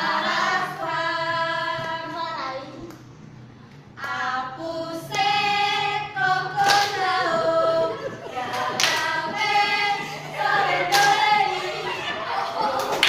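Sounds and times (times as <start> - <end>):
girls singing in unison: 0.0 - 2.8, 3.9 - 13.0
sharp hand claps: 8.5 - 9.1.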